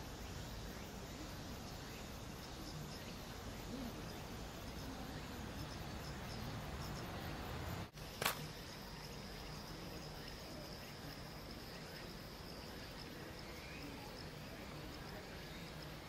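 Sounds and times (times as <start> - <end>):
insect trilling: 0.0 - 16.0
sharp click: 8.2 - 8.5.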